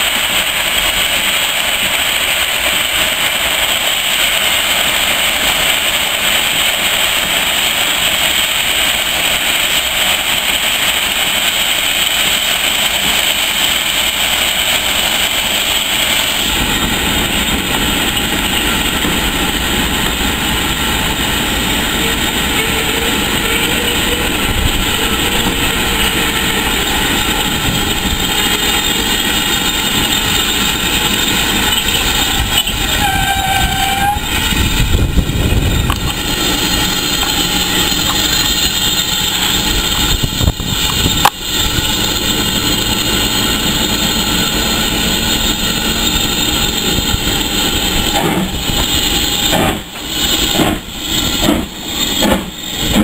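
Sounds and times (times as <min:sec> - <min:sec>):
locomotive pulsing beat: 0:00.0 - 0:53.0
steam locomotive rushing steam: 0:00.0 - 0:53.0
steam whistle: 0:21.3 - 0:53.0.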